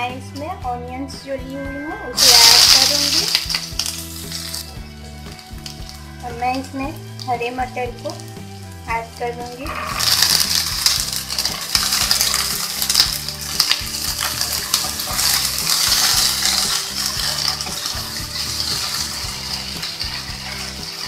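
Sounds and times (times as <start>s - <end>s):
vegetables sizzling in hot oil: 2.2s - 21.0s
wooden spatula scraping pan: 9.6s - 21.0s.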